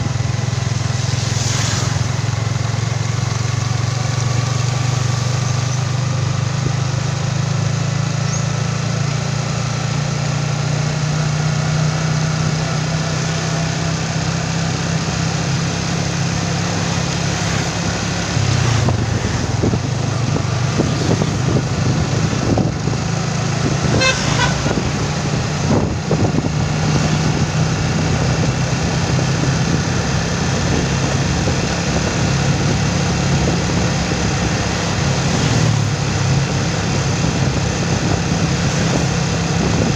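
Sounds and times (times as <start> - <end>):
small motorcycle engine running: 2.0 - 39.9
motorcycle horn toot: 23.8 - 24.9.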